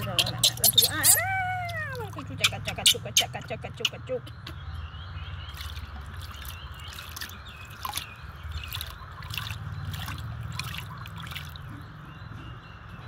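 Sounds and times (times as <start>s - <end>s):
water dripping and trickling: 0.0s - 13.0s
small water splashes: 5.3s - 12.0s.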